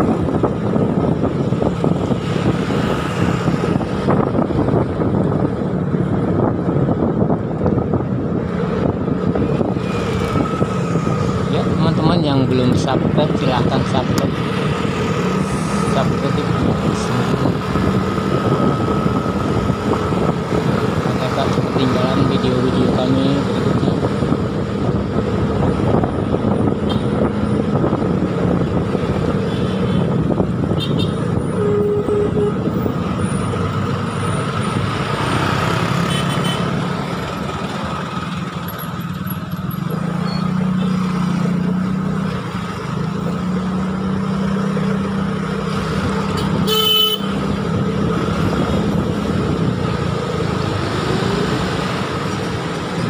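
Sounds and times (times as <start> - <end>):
road noise: 0.0 - 53.0
vehicle horn toot: 30.8 - 32.7, 46.4 - 47.4.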